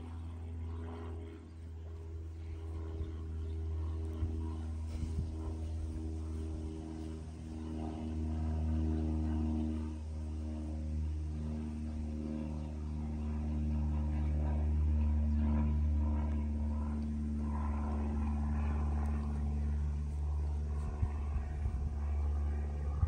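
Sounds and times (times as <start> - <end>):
low mechanical drone: 0.0 - 23.0.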